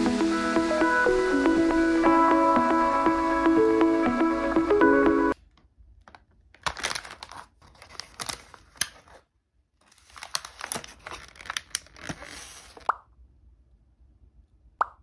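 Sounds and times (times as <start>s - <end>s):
foil bag and plastic tray crinkling: 6.0s - 12.9s
paper wrapper tearing: 6.0s - 12.9s.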